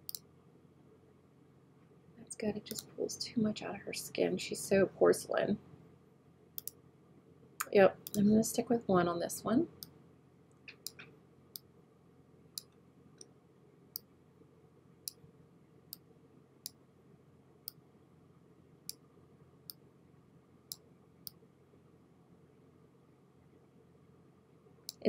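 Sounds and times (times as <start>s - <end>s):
computer mouse clicking: 0.0s - 0.2s, 2.7s - 2.9s, 6.6s - 6.8s
faint room hiss: 0.0s - 25.0s.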